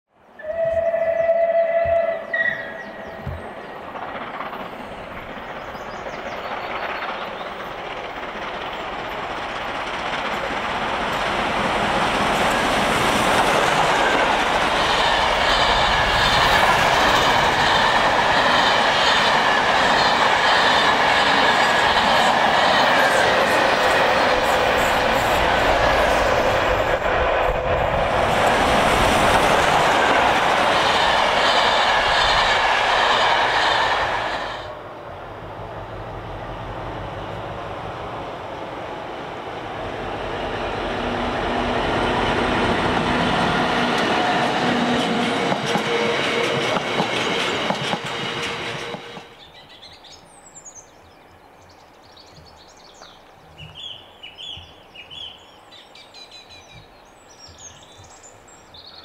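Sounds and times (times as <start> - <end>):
birdsong: 0.1 - 9.3, 49.3 - 59.0
diesel freight train passing: 0.3 - 59.0
train wheels clattering: 2.8 - 34.7, 41.4 - 49.9.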